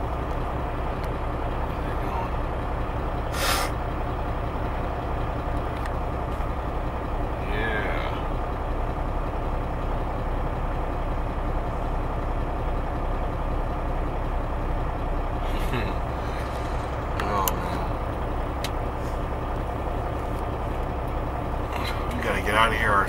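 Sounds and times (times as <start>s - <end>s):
diesel engine idling: 0.0s - 23.0s
brief air hiss: 3.3s - 3.8s.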